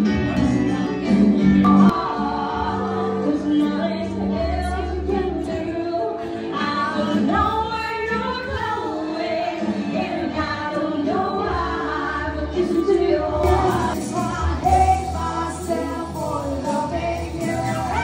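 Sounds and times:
steady bass line: 0.0s - 5.8s
woman singing: 0.4s - 18.0s.

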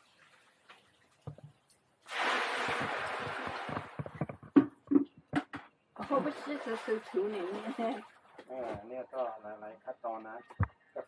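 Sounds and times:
water pouring: 0.0s - 4.6s, 6.0s - 8.8s.

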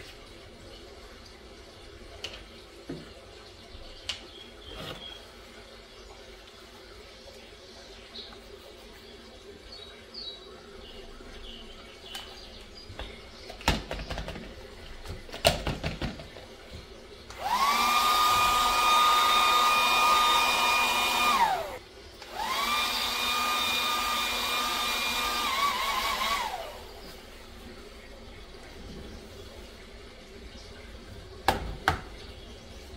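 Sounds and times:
kitchen appliance motor whining: 17.3s - 27.1s.

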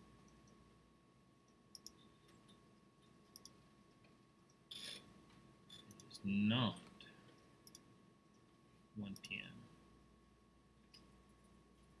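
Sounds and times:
computer mouse clicks: 1.7s - 2.6s, 3.3s - 3.6s, 5.7s - 6.1s, 7.6s - 7.9s.

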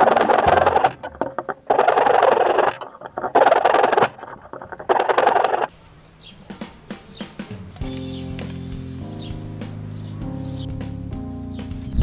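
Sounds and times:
hand saw cutting wood: 0.0s - 5.7s.

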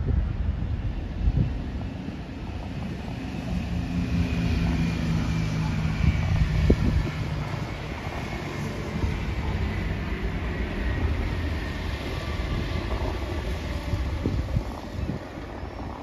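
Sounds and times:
wind rumble on microphone: 0.0s - 16.0s
truck diesel engine passing: 2.8s - 15.3s.

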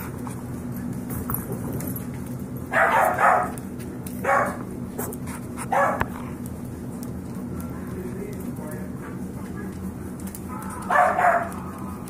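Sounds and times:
puppy barking: 2.7s - 3.6s, 4.2s - 6.3s, 10.5s - 11.9s.

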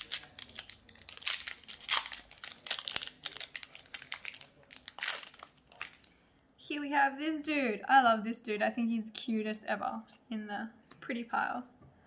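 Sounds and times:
foil wrapper crinkling: 0.0s - 6.2s.

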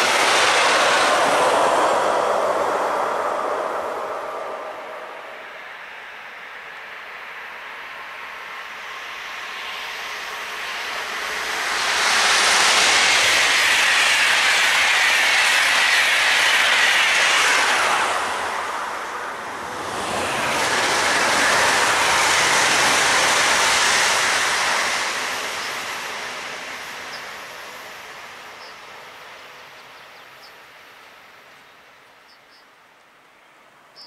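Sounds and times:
electric multiple unit passing: 0.0s - 5.5s, 9.0s - 28.7s
train passing at speed: 0.0s - 34.0s.

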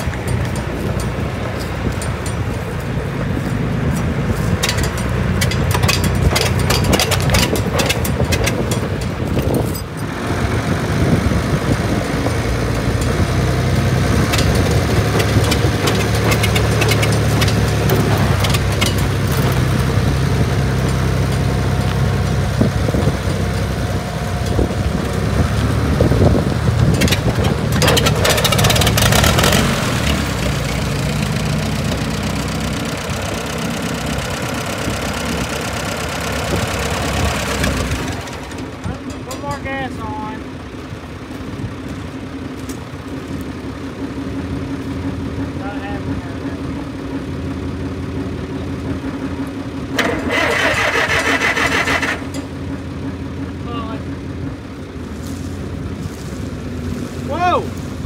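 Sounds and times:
rattling: 0.0s - 10.2s, 11.6s - 40.2s
engine running steadily: 0.0s - 58.0s.

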